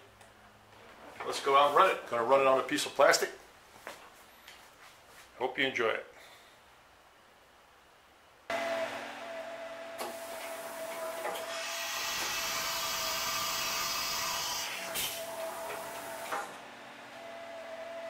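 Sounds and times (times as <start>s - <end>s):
machine cutting noise: 8.5s - 16.7s
milling machine spindle whine: 8.5s - 18.0s
loud hiss: 10.0s - 16.6s.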